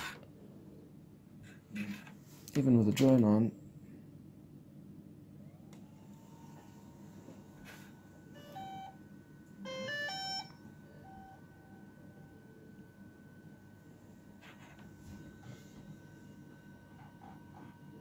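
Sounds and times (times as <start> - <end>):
faint steady high tone: 5.4 - 18.0
electronic beep tones: 9.6 - 11.9.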